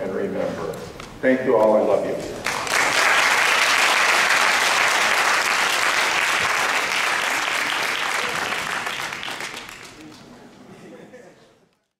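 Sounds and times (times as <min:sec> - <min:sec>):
audience applauding: 0:02.4 - 0:10.4.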